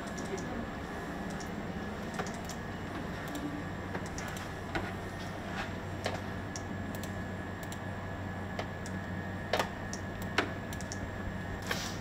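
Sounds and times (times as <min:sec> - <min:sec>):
computer clicks: 0:00.0 - 0:00.5, 0:01.2 - 0:04.5, 0:06.0 - 0:07.8, 0:08.6 - 0:11.1
low electrical hum: 0:00.0 - 0:12.0.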